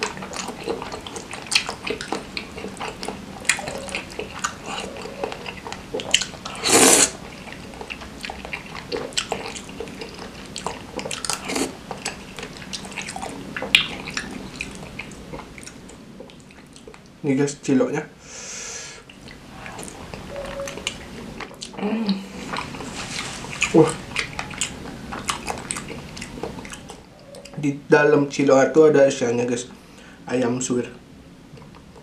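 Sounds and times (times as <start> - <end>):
wet chewing and lip smacking: 0.0 - 17.2, 19.0 - 21.8, 22.4 - 27.6
loud sucking sound: 6.6 - 7.2.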